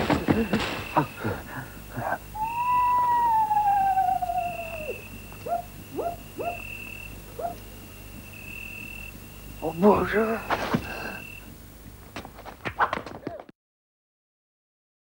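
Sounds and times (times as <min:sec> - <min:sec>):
owl hooting: 0:00.0 - 0:10.2
crickets chirping: 0:00.0 - 0:13.2.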